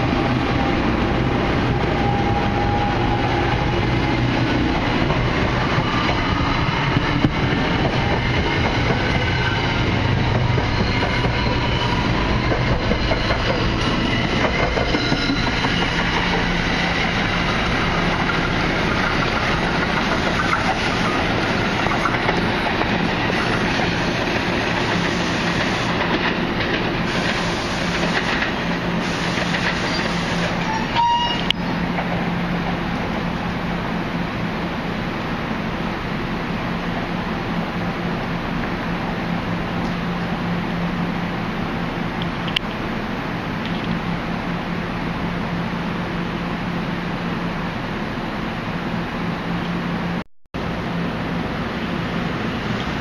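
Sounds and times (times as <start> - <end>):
train wheels on rails: 0.0 - 36.1.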